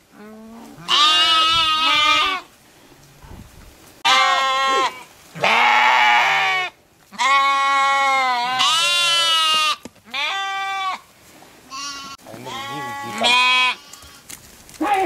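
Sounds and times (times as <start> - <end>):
sheep bleating: 0.8 - 2.5, 4.0 - 11.0, 11.7 - 14.2.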